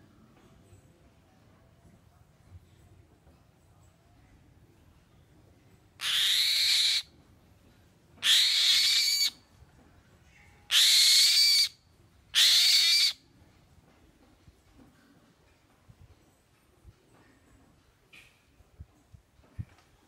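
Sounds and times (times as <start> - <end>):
bird rasping screeches: 6.0 - 7.0, 8.2 - 9.4, 10.7 - 11.7, 12.4 - 13.2.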